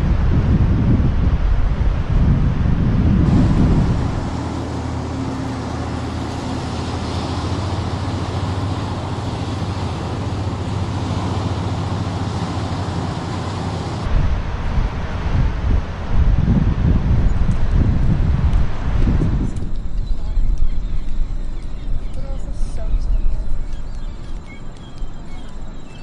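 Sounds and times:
low drone: 0.0s - 19.0s
wind buffeting microphone: 0.0s - 26.0s.

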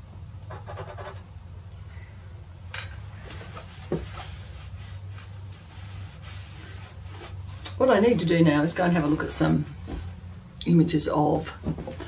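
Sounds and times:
steady low hum: 0.0s - 12.0s
pastel scratching on paper: 0.5s - 1.2s.

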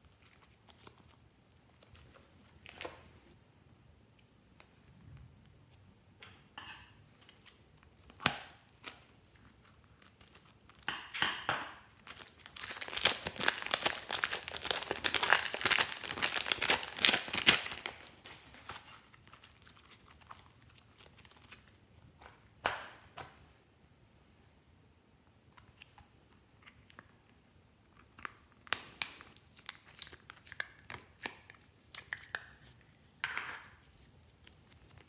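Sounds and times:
plastic bag crinkling and tearing: 11.9s - 21.8s.

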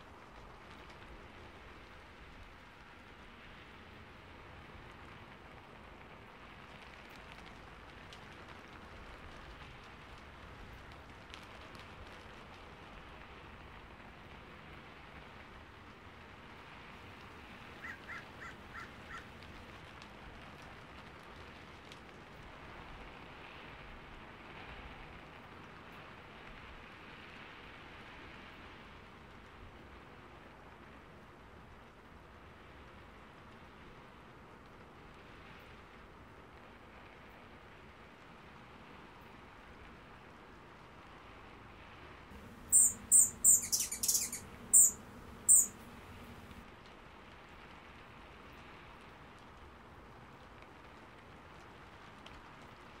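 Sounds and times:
steady rain falling: 0.0s - 39.4s, 42.3s - 43.5s, 44.4s - 53.0s
short chirping notes: 42.4s - 46.6s.

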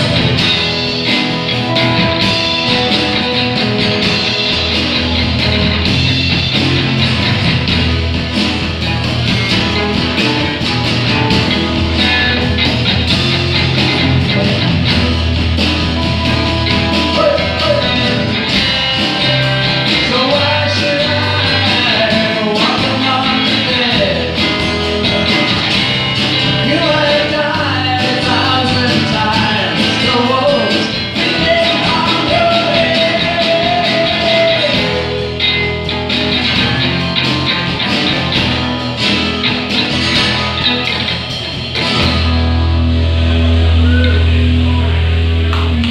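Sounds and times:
drum kit beat: 0.0s - 45.9s
electric and acoustic guitars: 0.0s - 45.9s
electric bass: 0.0s - 45.9s
pitch-bending melody line: 11.2s - 20.2s.

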